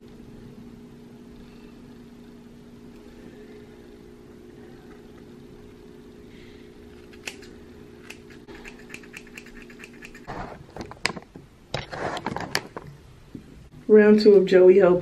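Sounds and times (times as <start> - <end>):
steady low hum: 0.0 - 15.0
scissors snipping hair: 7.0 - 10.3.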